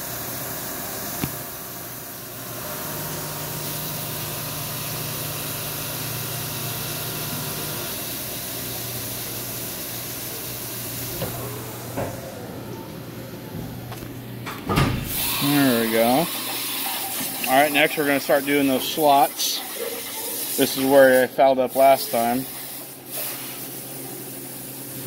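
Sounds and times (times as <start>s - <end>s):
low machine hum: 11.0s - 15.4s
coolant spray hiss: 15.0s - 25.0s.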